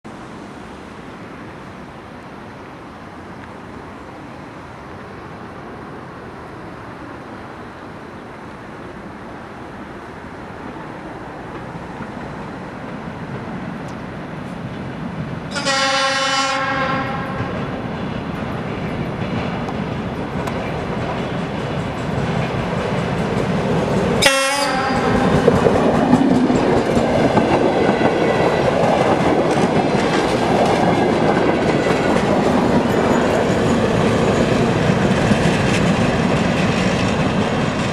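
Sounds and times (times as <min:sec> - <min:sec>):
train passing close: 0:00.1 - 0:37.9
train horn blasts: 0:15.5 - 0:17.5, 0:24.2 - 0:25.4.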